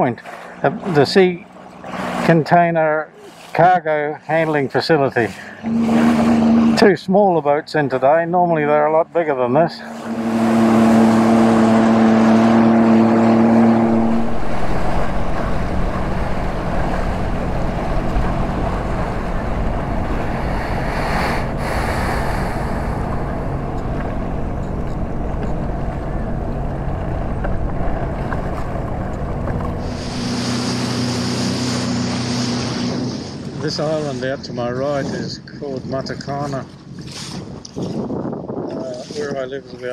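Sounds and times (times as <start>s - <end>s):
water slapping against hull: 0.0s - 6.9s, 8.0s - 35.1s, 35.8s - 39.8s
jet ski engine: 0.0s - 39.9s
wind on microphone: 9.8s - 39.9s.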